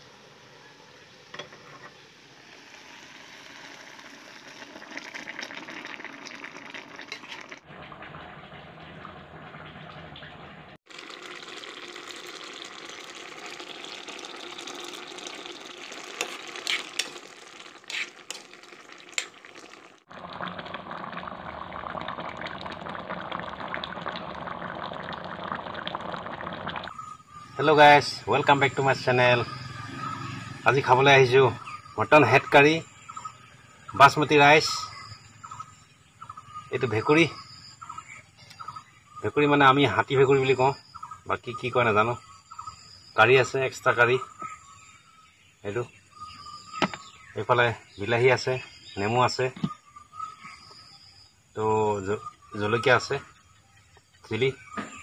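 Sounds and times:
rice bubbling in saucepan: 0:00.0 - 0:29.7
curry bubbling and simmering: 0:02.5 - 0:27.6.

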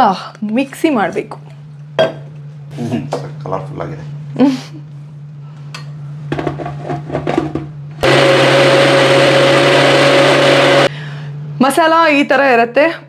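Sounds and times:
blender running with whine: 0:08.0 - 0:10.9.

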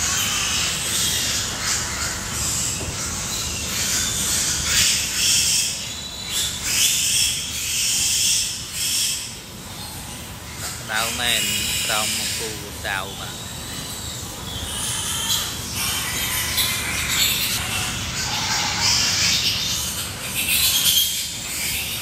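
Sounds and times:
pigs squealing: 0:00.0 - 0:22.0
steady hiss: 0:10.8 - 0:13.3.

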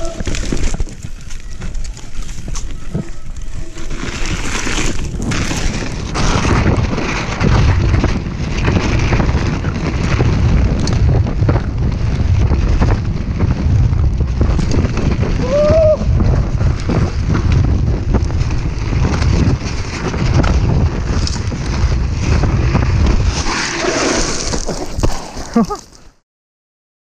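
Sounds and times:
bike rattling and knocking: 0:00.0 - 0:23.6
wind buffeting microphone: 0:00.0 - 0:25.7
tyres rumbling over dirt: 0:00.0 - 0:26.2.

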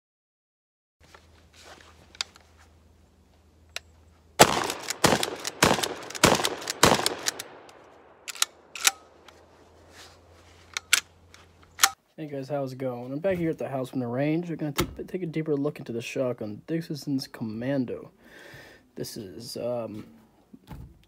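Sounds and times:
sharp clicks: 0:03.7 - 0:09.4
shotgun blasts with echo: 0:04.4 - 0:08.8.

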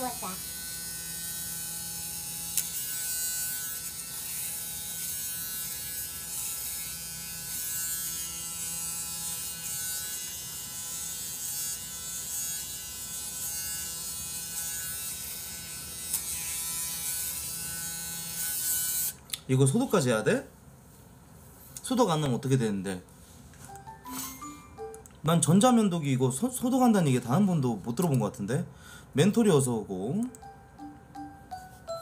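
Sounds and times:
electric shaver running: 0:00.0 - 0:19.2.

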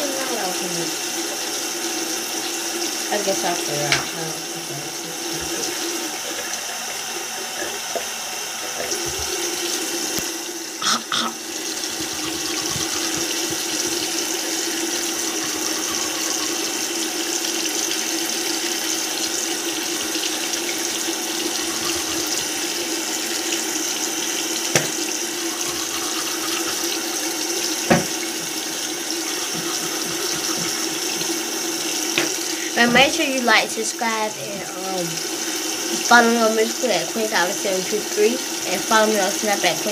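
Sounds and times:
sink tap running: 0:00.0 - 0:39.9
sharp knocks: 0:24.8 - 0:25.0, 0:27.9 - 0:28.2.

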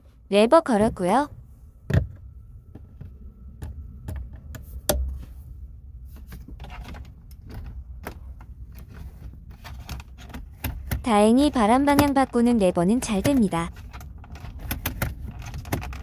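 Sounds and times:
plastic lever clicks and knocks: 0:13.2 - 0:16.0.

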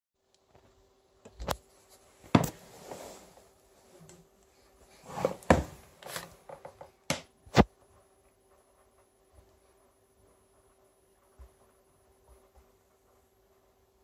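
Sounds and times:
faint steady hum: 0:00.2 - 0:14.0
rustling and scuffing: 0:01.6 - 0:03.9.

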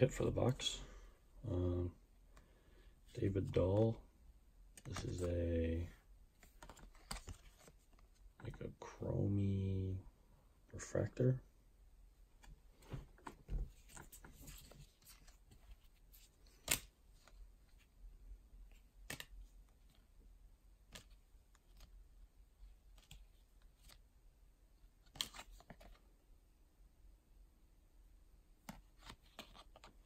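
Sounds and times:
cards sliding: 0:06.4 - 0:08.0, 0:16.4 - 0:16.9, 0:28.7 - 0:30.0.

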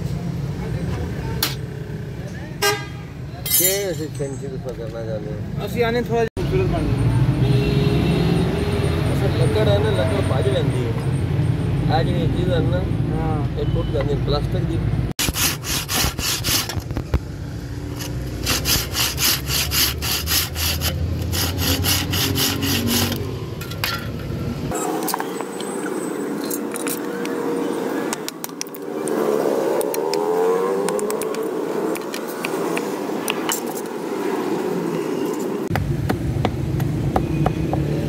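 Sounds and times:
hand saw cutting wood: 0:15.2 - 0:16.8, 0:18.0 - 0:23.3.

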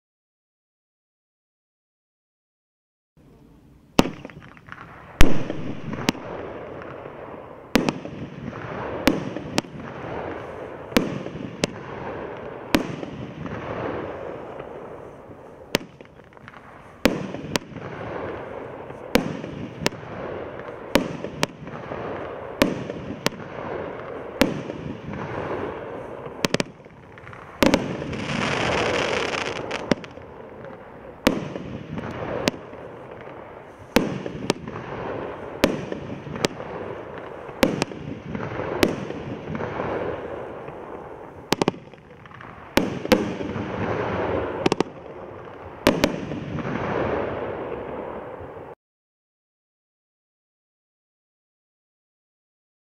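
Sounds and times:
firework stars crackling: 0:03.2 - 0:48.8
firework bangs: 0:03.9 - 0:48.8
firework rushing hiss: 0:04.0 - 0:45.0.

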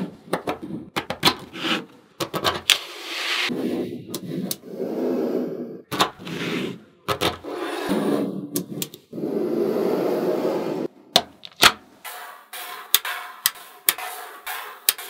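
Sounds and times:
magnetic balls snapping together: 0:11.1 - 0:11.9, 0:12.9 - 0:14.1.

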